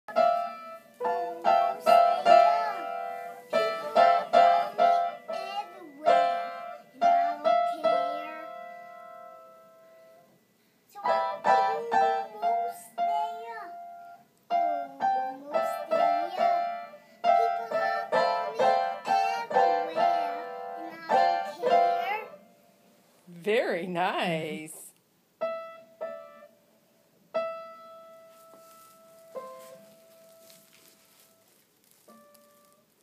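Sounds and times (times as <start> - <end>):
child singing: 0.1 - 8.8, 11.0 - 13.7, 14.5 - 22.4
child playing piano: 0.1 - 10.2, 11.0 - 22.4, 25.4 - 26.6, 27.3 - 31.5.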